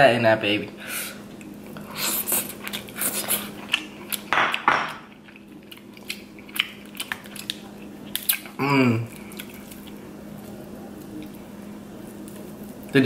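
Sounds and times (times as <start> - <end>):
faint low hum: 0.0 - 13.0
wet chewing: 1.3 - 12.9
crab shell cracking: 3.7 - 10.0.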